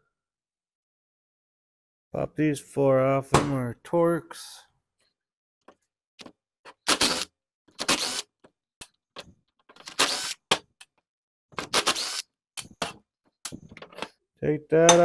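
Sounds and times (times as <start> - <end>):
screwdriver rasping: 6.7 - 8.3, 11.6 - 13.0.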